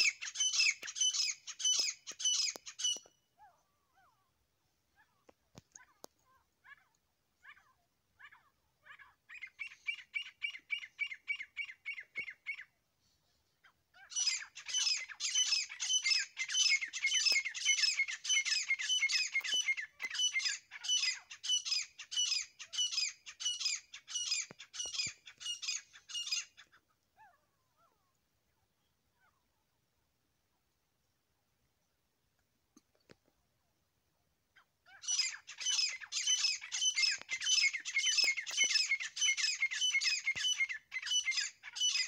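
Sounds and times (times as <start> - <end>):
bird calling shrill repeated notes: 0.0 - 4.2, 14.0 - 26.8, 34.9 - 42.0.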